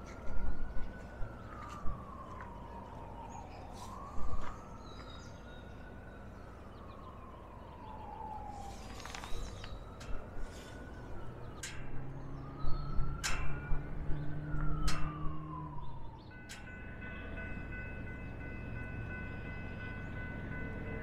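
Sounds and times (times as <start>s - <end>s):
siren wailing: 0.0s - 16.3s.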